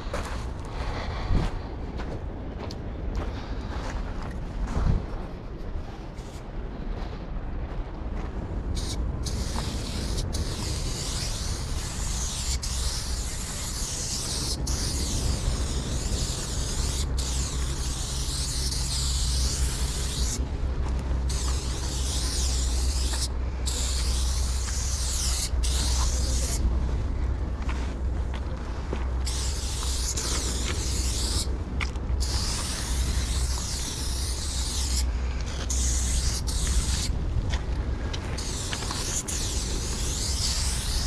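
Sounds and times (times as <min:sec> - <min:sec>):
steady low rumble: 0:00.0 - 0:41.0
spray paint can hissing: 0:08.8 - 0:20.4, 0:21.2 - 0:26.6, 0:29.2 - 0:31.5, 0:32.2 - 0:37.1, 0:38.4 - 0:41.0.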